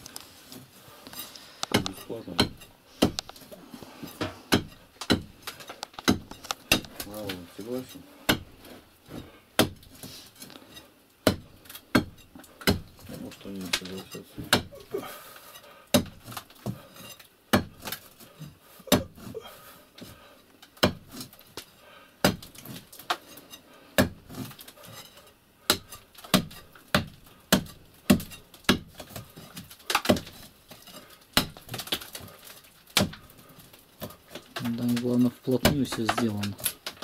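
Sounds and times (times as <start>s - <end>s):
knocks and clinks of brick: 1.1s - 8.5s.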